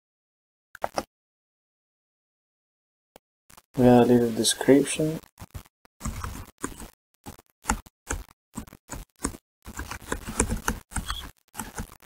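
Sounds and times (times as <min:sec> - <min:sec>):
computer keyboard typing: 0:05.4 - 0:12.0.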